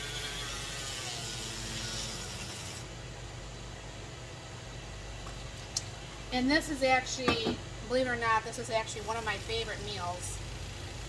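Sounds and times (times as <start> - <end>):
milk frother whirring: 0.0 - 2.9, 8.8 - 11.0
steady low hum: 0.0 - 11.0.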